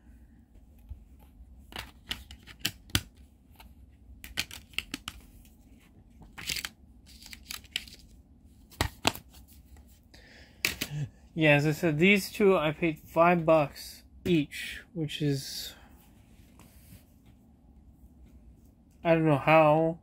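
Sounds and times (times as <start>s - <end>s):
plastic disc cases clicking: 4.2s - 5.2s, 6.3s - 8.0s
paper inserts rustling: 6.2s - 9.9s.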